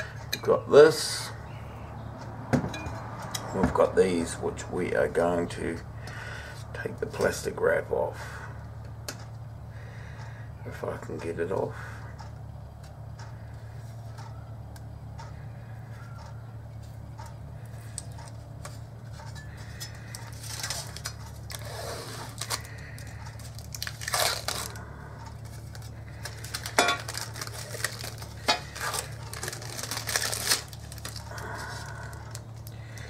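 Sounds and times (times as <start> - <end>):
plastic film crinkling and tearing: 19.7 - 24.8, 25.4 - 32.8.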